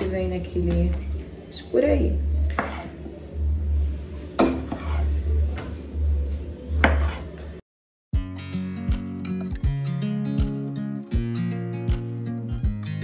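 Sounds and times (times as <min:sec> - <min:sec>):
strummed acoustic guitar music: 0:08.2 - 0:13.0.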